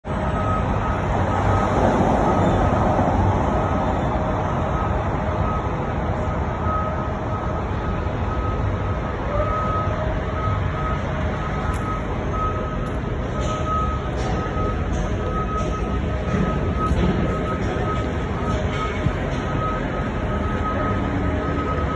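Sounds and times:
city street traffic: 0.0 - 21.9
high electronic beeps: 9.4 - 21.9.

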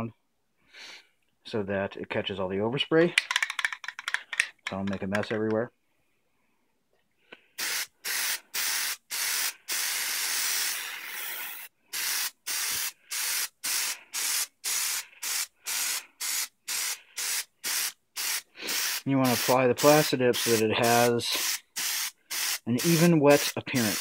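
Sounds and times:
aerosol can spraying: 7.6 - 24.0.

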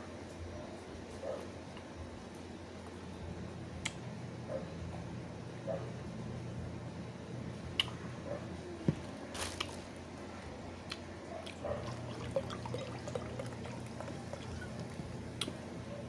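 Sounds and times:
drink poured from glass bottle: 11.8 - 15.0.

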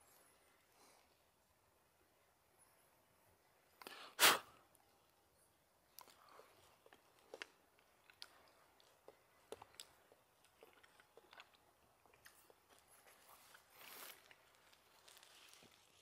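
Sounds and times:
chewing raspberries: 5.9 - 16.0.

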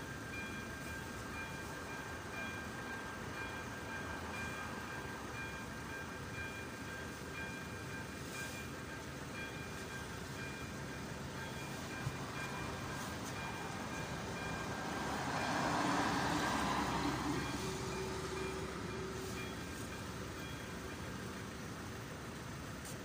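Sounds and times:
level crossing warning bell: 0.0 - 22.8.

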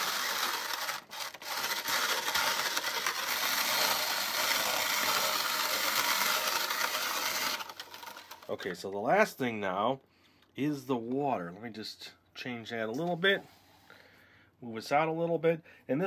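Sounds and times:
plastic paddle rasping crunch: 0.0 - 8.5
toy mixer grinding cereal: 0.0 - 8.6.

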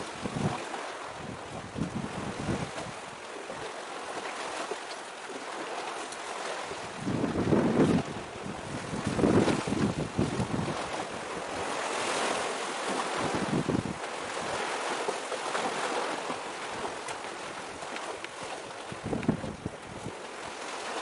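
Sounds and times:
wind buffeting microphone: 0.0 - 3.1, 6.7 - 15.0, 16.6 - 20.8
sea waves: 0.0 - 21.0.

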